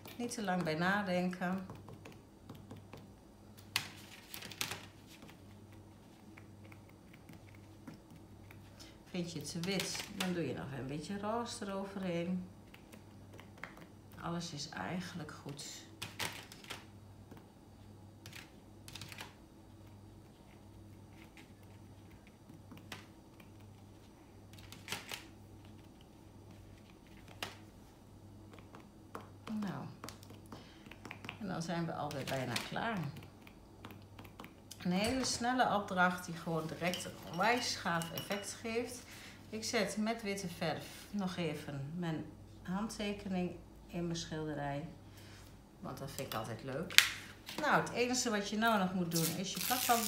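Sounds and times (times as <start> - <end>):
low steady hum: 0.0 - 50.0
cotton swab tapping on paper: 1.5 - 3.2, 28.5 - 31.4
cotton swab tapping paint: 1.6 - 3.2.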